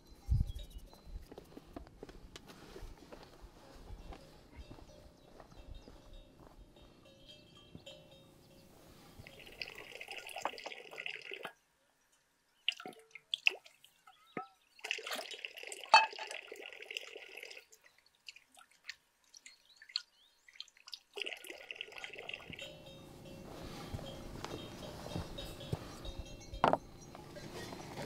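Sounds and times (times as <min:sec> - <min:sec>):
water pouring: 0:09.3 - 0:11.5, 0:14.7 - 0:22.8.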